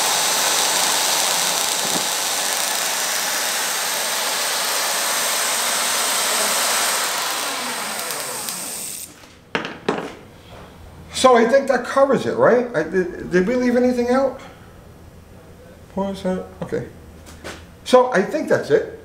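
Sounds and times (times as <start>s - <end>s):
distributor whirring hiss: 0.0s - 9.2s.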